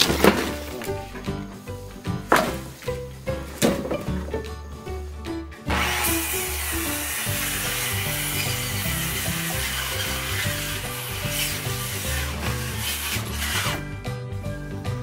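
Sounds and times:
background music with bass line: 0.0 - 15.0
circular saw cutting wood: 5.7 - 14.0.

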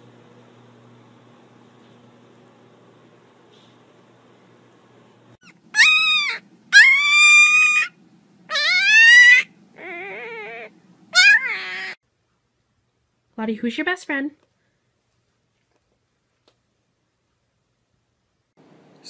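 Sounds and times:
puppy crying: 5.4 - 12.0.

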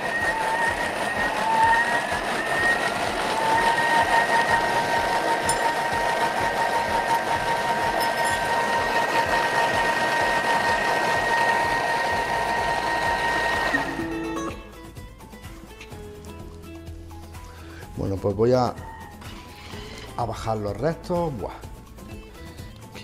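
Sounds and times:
food processor motor whining: 0.0 - 14.6, 19.1 - 20.2.

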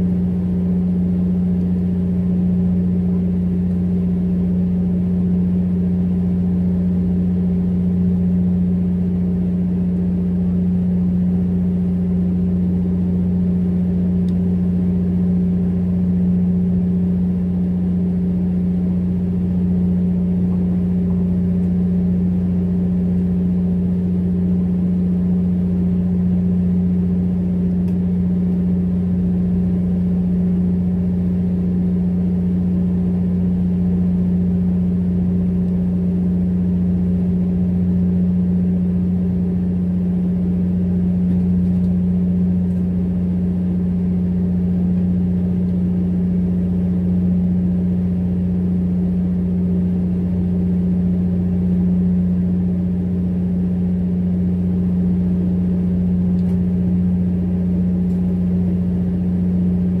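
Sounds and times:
boat engine humming: 0.0 - 31.8.

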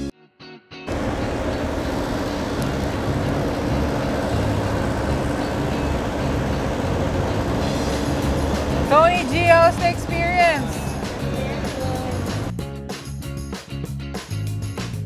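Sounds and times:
bus engine idling: 0.9 - 12.5.

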